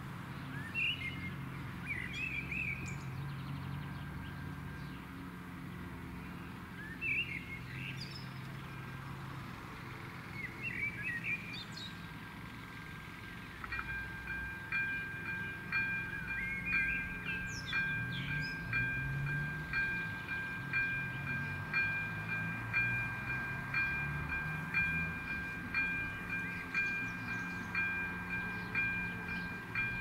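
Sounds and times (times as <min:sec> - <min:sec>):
small birds chirping: 0:00.3 - 0:05.2, 0:06.1 - 0:09.2, 0:10.2 - 0:30.0
electronic bell warning signal: 0:13.7 - 0:30.0.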